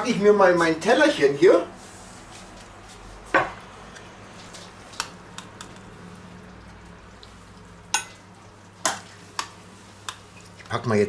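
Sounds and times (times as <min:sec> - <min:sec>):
spoon clinking against pot: 0:07.9 - 0:08.2.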